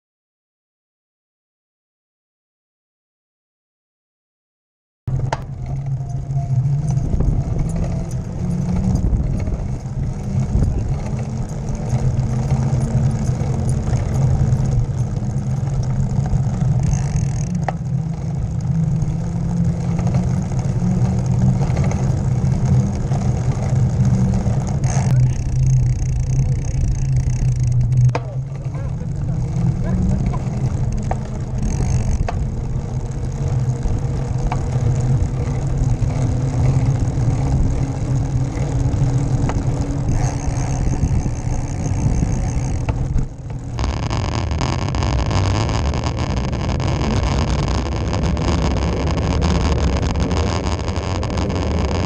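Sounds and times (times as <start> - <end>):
bicycle rolling on asphalt: 5.1 - 52.0.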